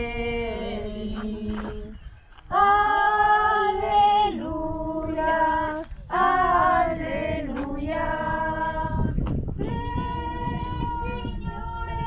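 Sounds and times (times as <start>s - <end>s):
choir singing a hymn: 0.0s - 12.0s.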